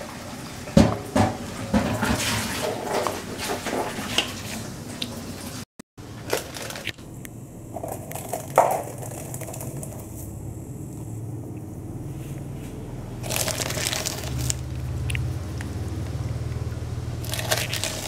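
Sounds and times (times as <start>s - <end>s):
low steady hum: 6.0s - 18.0s
plastic bag crinkling: 6.2s - 7.0s, 7.8s - 10.2s, 13.2s - 14.8s, 17.2s - 18.0s.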